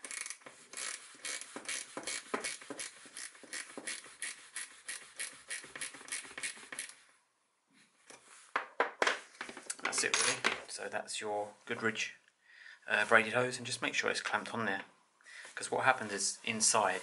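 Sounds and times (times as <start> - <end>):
ratcheting spanner clicking: 0.0 - 7.0.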